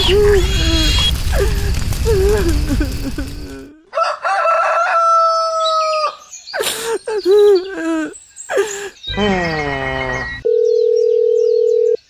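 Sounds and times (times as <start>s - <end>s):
rooster crowing: 3.9s - 6.3s
wavering pitched cries: 7.1s - 10.4s.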